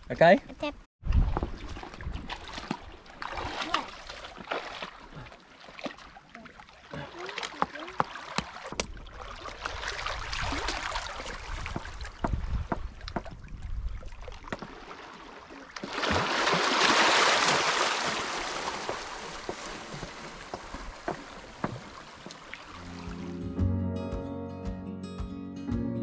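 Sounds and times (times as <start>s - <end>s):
water lapping around rocks: 1.1s - 23.0s
rush of washing water: 1.8s - 13.1s, 14.4s - 23.2s.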